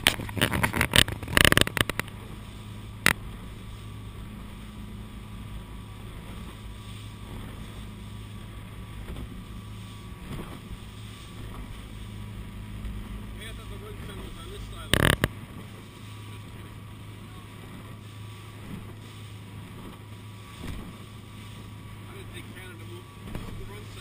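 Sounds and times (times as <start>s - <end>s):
camera knocks and rattles: 0.0s - 2.2s, 15.0s - 15.3s
sharp click: 0.0s - 2.2s
motorboat engine drone: 0.0s - 24.0s
rushing water and wind: 0.0s - 24.0s.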